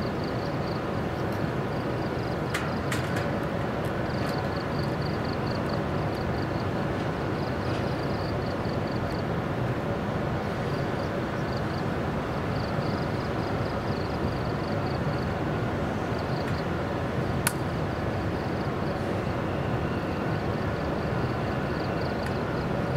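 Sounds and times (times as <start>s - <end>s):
electric locomotive humming: 0.0s - 22.9s
sharp click: 17.4s - 17.6s.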